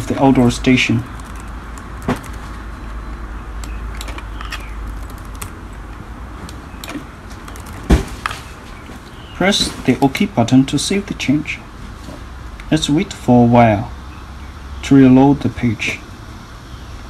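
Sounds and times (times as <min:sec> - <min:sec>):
steady low hum: 0:00.0 - 0:17.0
laptop keys clicking: 0:01.0 - 0:02.5, 0:03.6 - 0:05.6, 0:06.5 - 0:07.9.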